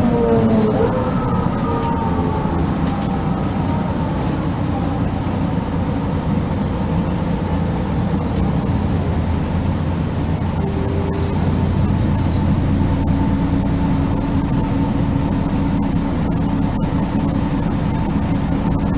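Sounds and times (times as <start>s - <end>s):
bus engine and road rumble: 0.0s - 18.9s
faint high whine: 9.9s - 18.9s.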